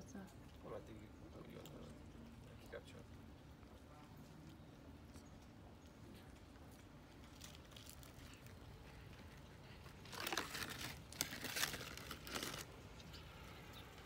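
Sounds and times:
plastic crinkling and rustling: 0:06.3 - 0:13.0.

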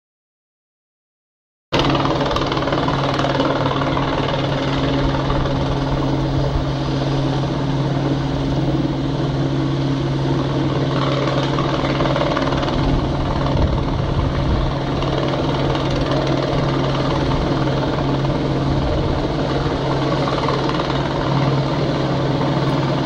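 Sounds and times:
helicopter hovering: 0:01.7 - 0:23.0.

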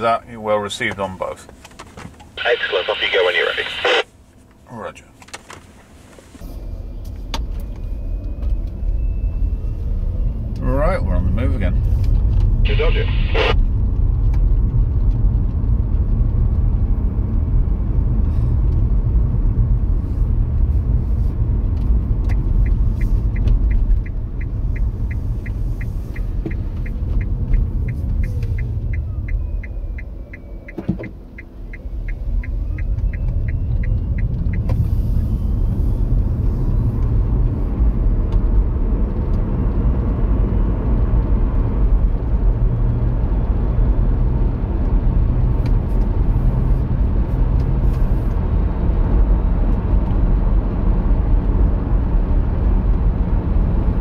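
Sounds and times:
turn signal ticking: 0:20.5 - 0:43.5.

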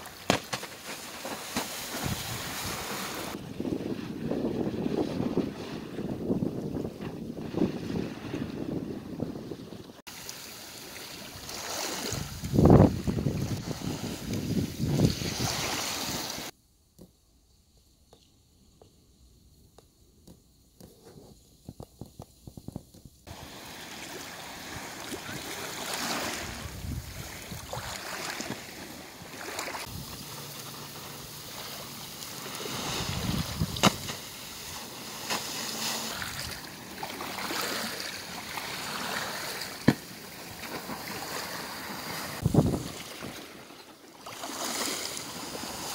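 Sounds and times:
water lapping and splashing: 0:00.0 - 0:16.5, 0:22.5 - 0:45.9
wind on microphone: 0:01.9 - 0:10.0, 0:11.4 - 0:16.5, 0:24.6 - 0:28.9, 0:29.8 - 0:30.5, 0:32.5 - 0:34.8, 0:42.1 - 0:43.5.

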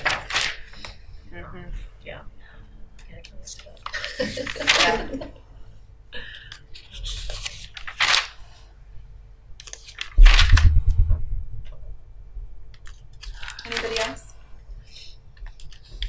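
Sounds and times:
rustling and crunching: 0:06.8 - 0:08.4
loud thump with low rumble: 0:10.2 - 0:12.0.

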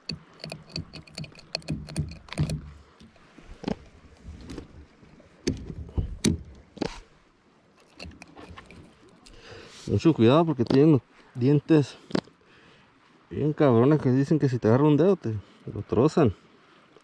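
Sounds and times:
small clicks of fishing gear: 0:00.0 - 0:04.7, 0:05.4 - 0:07.1, 0:07.8 - 0:09.4, 0:12.0 - 0:12.4
knocks against kayak hull: 0:05.4 - 0:07.0.

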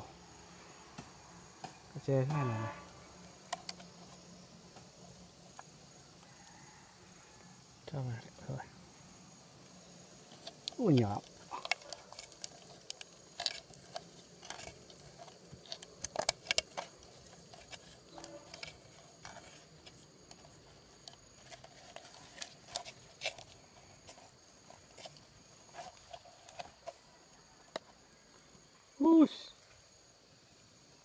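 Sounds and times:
bamboo shoot cracking and clicking: 0:03.4 - 0:06.6, 0:10.3 - 0:27.0.

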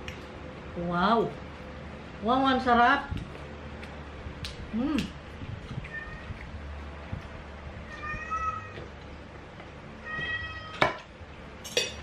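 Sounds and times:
cat meowing: 0:05.8 - 0:06.5, 0:07.8 - 0:08.9, 0:10.0 - 0:11.0.

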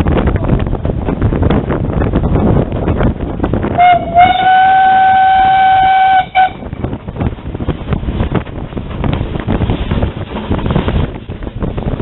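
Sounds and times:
wind on microphone: 0:00.0 - 0:12.0
steam engine whistle: 0:03.8 - 0:06.6.

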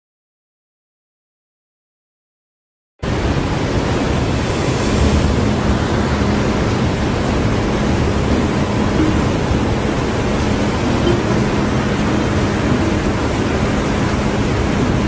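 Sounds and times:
water rushing into whirlpool: 0:03.0 - 0:15.0.

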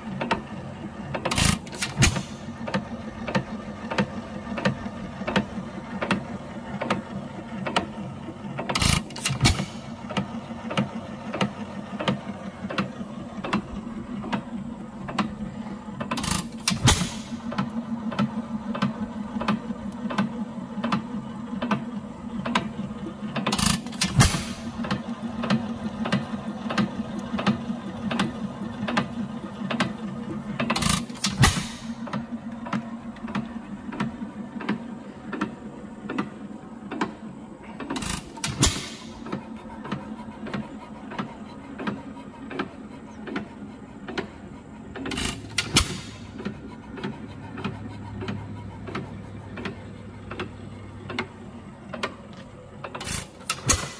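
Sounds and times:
engine exhaust bangs: 0:00.0 - 0:53.9
engine valve gear clicking: 0:01.1 - 0:06.2, 0:16.0 - 0:21.8, 0:23.4 - 0:28.3, 0:30.6 - 0:35.5, 0:37.8 - 0:42.7, 0:44.9 - 0:53.9.

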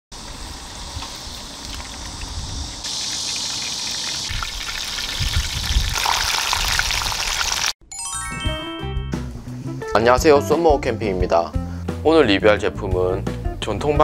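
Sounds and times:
chicken deep-frying in oil: 0:00.2 - 0:07.8.

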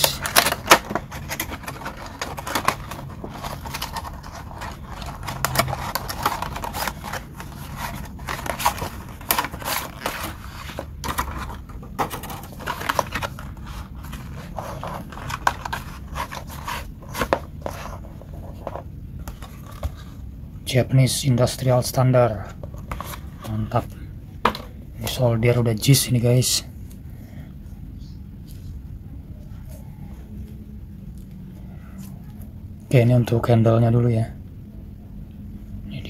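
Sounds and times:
plastic packaging crackling: 0:00.0 - 0:19.9.

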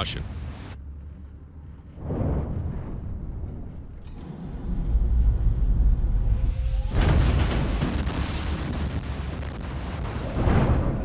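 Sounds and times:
deep rumble of breaking wave: 0:02.0 - 0:11.0.

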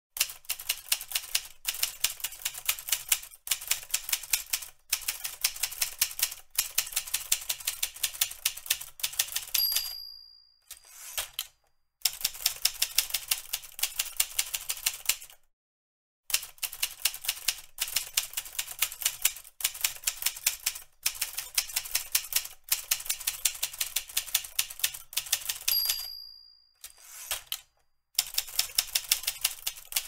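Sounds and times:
typewriter carriage bell ding: 0:09.3 - 0:11.5, 0:24.8 - 0:27.7.

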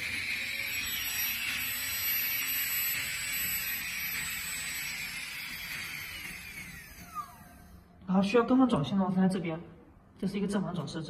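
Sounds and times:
micromotor handpiece whine: 0:00.0 - 0:07.9.

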